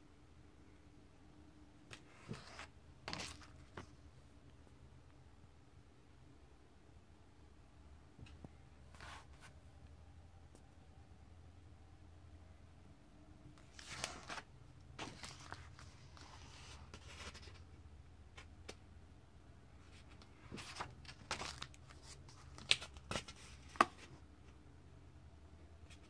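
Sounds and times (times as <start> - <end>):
low steady hum: 0.0 - 26.0
pages being turned: 1.9 - 3.9, 13.6 - 17.7, 19.9 - 24.2.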